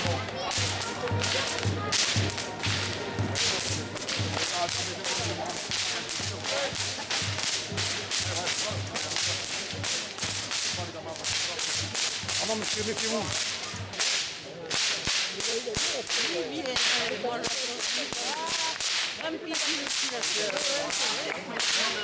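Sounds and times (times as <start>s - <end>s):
whips cracking: 0.0s - 22.0s.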